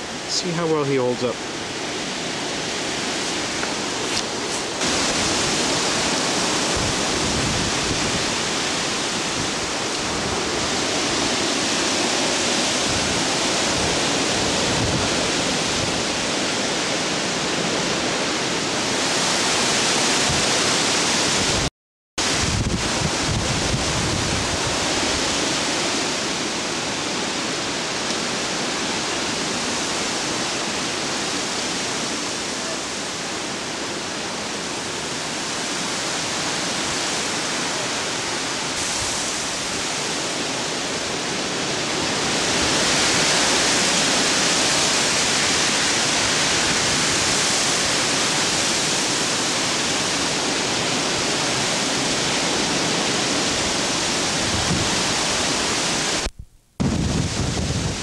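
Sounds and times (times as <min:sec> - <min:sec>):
storm wind rushing through trees: 0:00.0 - 0:58.0.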